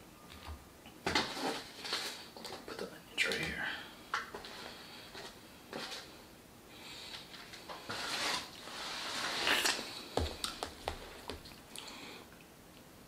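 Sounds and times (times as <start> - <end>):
rustling: 1.1 - 2.9, 7.0 - 11.7.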